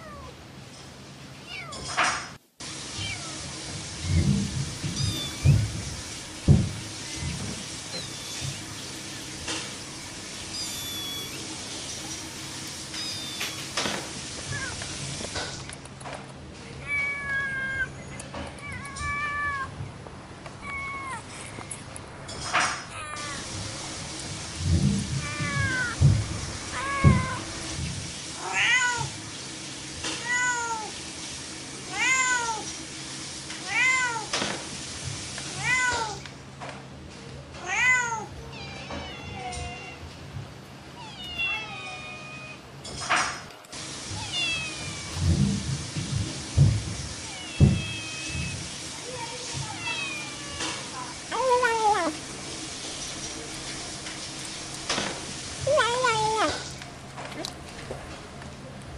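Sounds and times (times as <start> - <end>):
cat meowing: 0.0 - 0.4, 1.4 - 1.9, 3.0 - 3.6, 4.9 - 5.7, 7.9 - 8.6, 10.5 - 11.6, 12.4 - 13.8, 14.4 - 14.9, 16.8 - 18.0, 18.6 - 19.8, 20.6 - 21.3, 22.9 - 23.5, 25.2 - 26.0, 26.7 - 27.7, 28.4 - 29.2, 31.9 - 32.7, 33.6 - 34.3, 35.6 - 36.2, 37.6 - 40.1, 41.0 - 42.6, 44.1 - 45.3, 47.2 - 48.7, 49.5 - 52.1.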